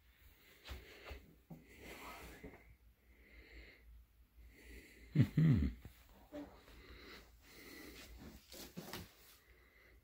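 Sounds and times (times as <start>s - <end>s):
clothes rustling: 6.1s - 9.5s.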